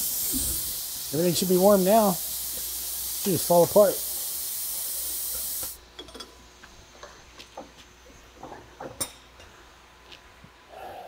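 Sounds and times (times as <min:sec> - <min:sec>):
heating torch hissing: 0:00.0 - 0:05.8.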